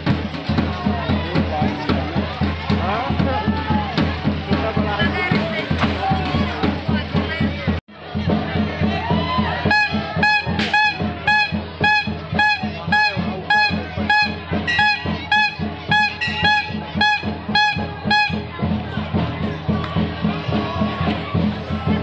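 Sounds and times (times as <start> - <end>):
drums beating: 0.0 - 22.0
wind instrument short high notes: 9.4 - 19.2.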